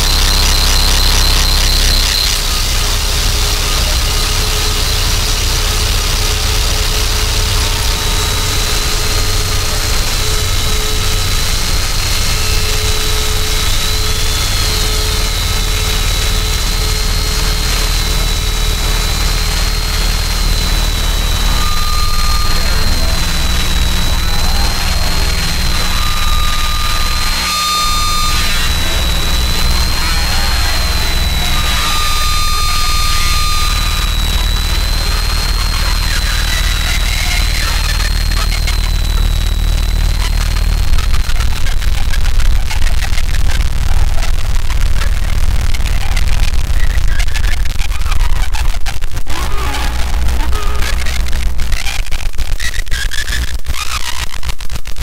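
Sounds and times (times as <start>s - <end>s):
heavy low rumble: 0.0s - 46.8s, 49.0s - 52.6s
harsh noise music: 0.0s - 54.4s
crackles: 0.0s - 55.0s
hiss and static: 0.0s - 55.0s
held whistling tones: 12.2s - 37.6s.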